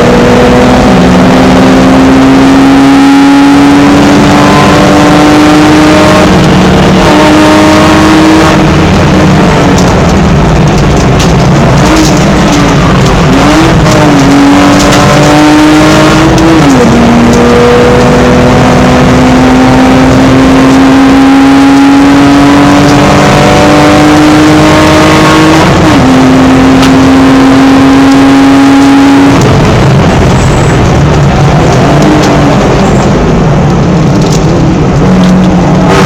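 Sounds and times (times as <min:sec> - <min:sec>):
racing engine under full throttle: 0:00.0 - 0:36.0
wind and road noise: 0:00.0 - 0:36.0.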